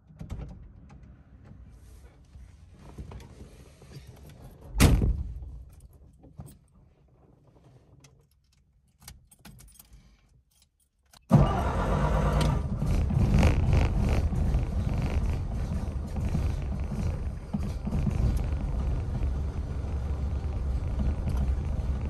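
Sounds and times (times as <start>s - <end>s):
car engine starting and idling: 11.3s - 22.0s.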